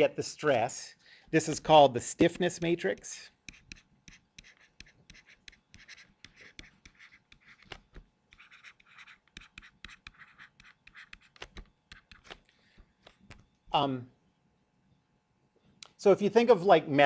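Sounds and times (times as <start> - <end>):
stylus writing on tablet: 2.2 - 12.4.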